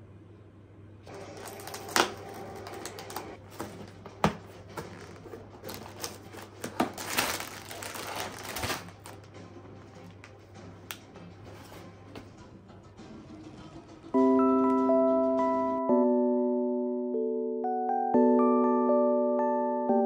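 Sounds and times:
crinkly rustling: 1.1s - 9.3s.

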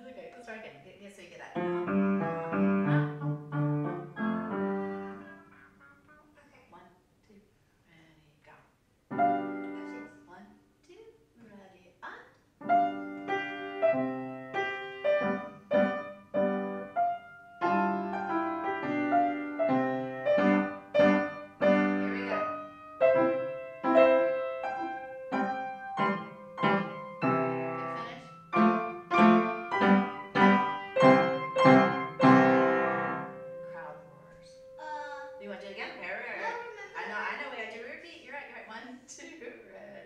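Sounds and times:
piano duet: 1.5s - 6.4s, 9.1s - 10.3s, 12.6s - 36.8s.

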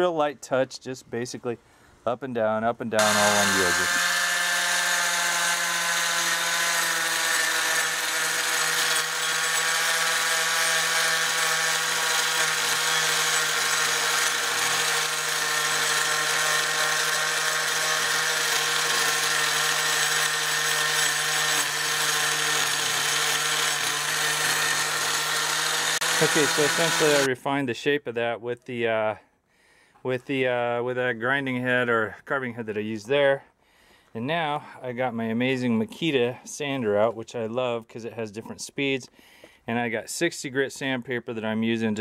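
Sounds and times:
angle grinder grinding wood: 3.0s - 27.3s.

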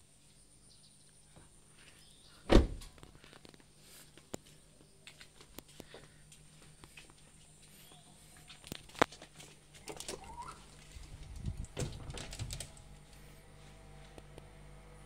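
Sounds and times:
door closing thumps and clicks: 2.5s - 3.0s, 11.3s - 12.8s
door squeak: 10.1s - 10.7s.

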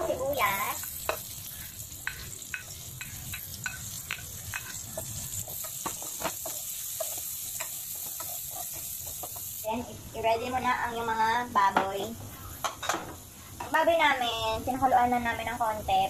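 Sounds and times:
onions sizzling in hot oil: 0.0s - 16.0s
spatula tapping and scraping: 0.8s - 1.4s, 2.0s - 9.6s.

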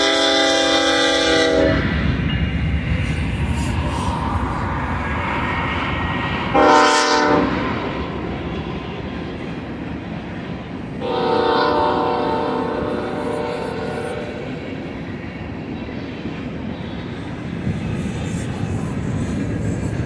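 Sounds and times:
locomotive horn chord: 0.0s - 1.9s, 6.5s - 7.8s, 11.0s - 14.5s
train cars rolling on rails: 0.0s - 20.0s.

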